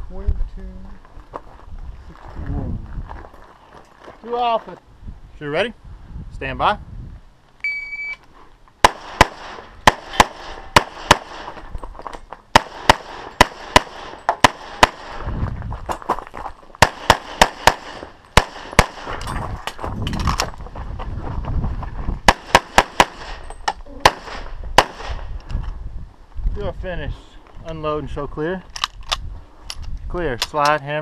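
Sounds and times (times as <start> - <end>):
rapid pistol shots: 8.8 - 11.6, 12.5 - 15.2, 16.8 - 19.1, 22.3 - 23.4, 24.0 - 25.2.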